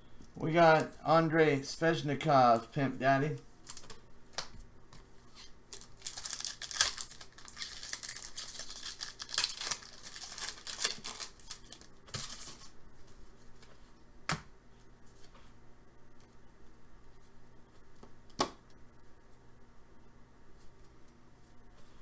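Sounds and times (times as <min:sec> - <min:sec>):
foil wrapper tearing and crinkling: 0:05.7 - 0:12.7.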